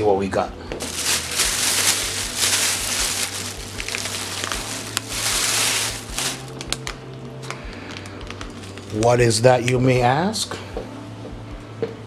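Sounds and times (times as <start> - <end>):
plastic bag rustling: 0.8 - 7.0.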